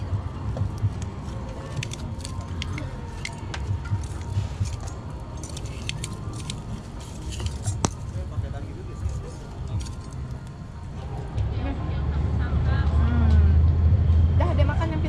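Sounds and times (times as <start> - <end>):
steady low rumble: 0.0 - 15.0
small objects clinking and rattling: 1.5 - 8.1.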